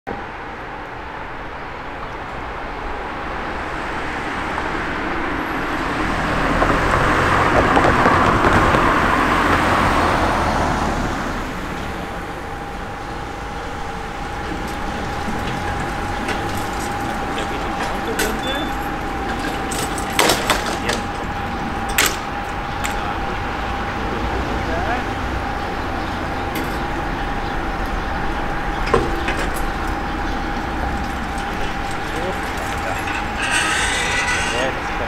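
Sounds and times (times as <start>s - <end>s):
level crossing warning tone: 11.9s - 35.0s.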